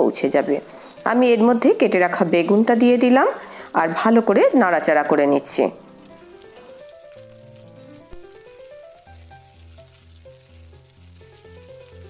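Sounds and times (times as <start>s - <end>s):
soft background music: 0.0s - 12.0s
vegetables sizzling in oil: 0.0s - 12.0s
spatula stirring: 6.0s - 12.0s.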